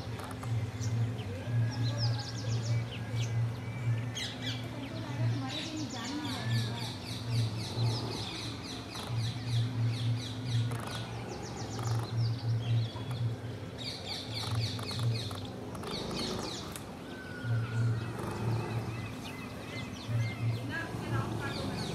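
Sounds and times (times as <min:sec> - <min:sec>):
low pulsing hum: 0:00.0 - 0:21.9
sparrows chirping: 0:00.0 - 0:21.9.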